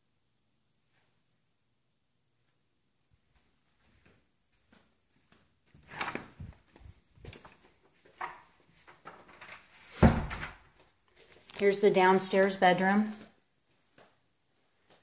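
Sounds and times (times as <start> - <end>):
door thumping shut: 10.0 - 10.6.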